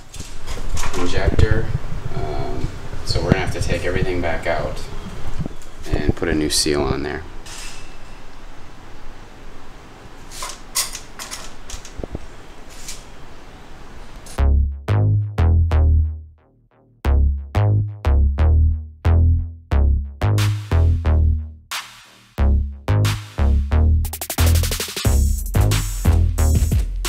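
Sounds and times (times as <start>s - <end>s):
electronic music with drum beat: 14.4s - 16.2s, 17.1s - 27.0s.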